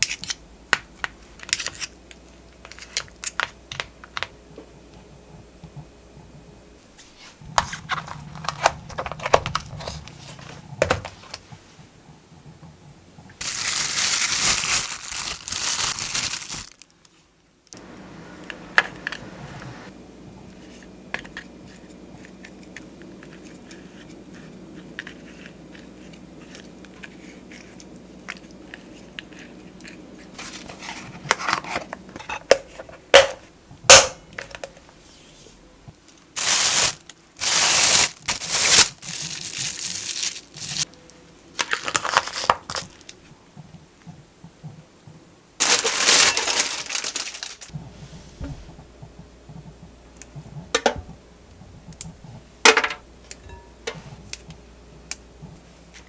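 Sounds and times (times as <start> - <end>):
low steady hum: 0.0 - 56.0
plastic bag crinkling: 13.4 - 17.2, 36.3 - 40.9, 41.6 - 43.2, 45.6 - 47.7.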